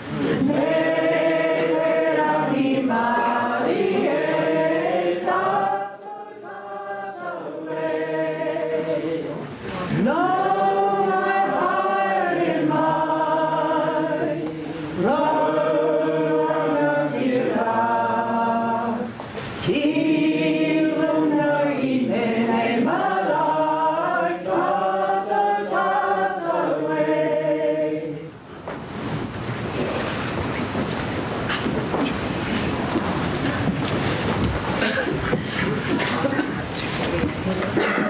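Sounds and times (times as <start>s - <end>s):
group singing unaccompanied: 0.0s - 28.4s.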